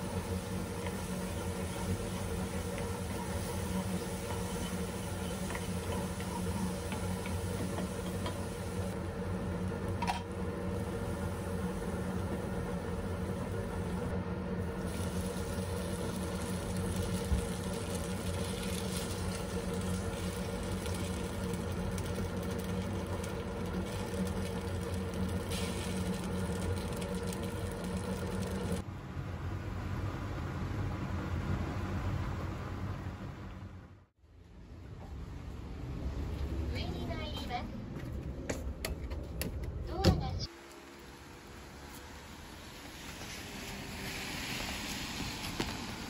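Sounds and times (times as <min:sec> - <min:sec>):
food frying in a pan: 0:00.0 - 0:28.8
steady machine hum: 0:00.0 - 0:43.8.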